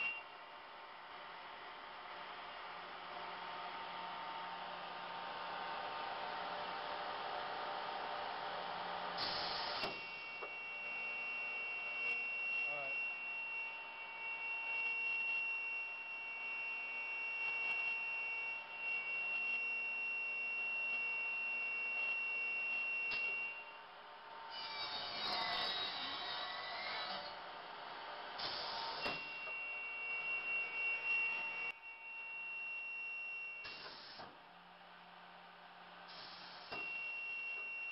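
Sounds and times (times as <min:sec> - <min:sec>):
miter saw whining: 0:09.2 - 0:23.8, 0:24.5 - 0:27.7, 0:28.3 - 0:34.3, 0:36.1 - 0:37.9
saw cutting wood: 0:24.5 - 0:27.5, 0:28.4 - 0:31.7.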